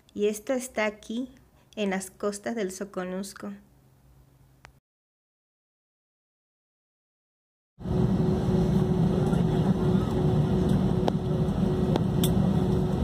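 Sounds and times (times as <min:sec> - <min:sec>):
low engine rumble in jet cabin: 0:07.8 - 0:13.0.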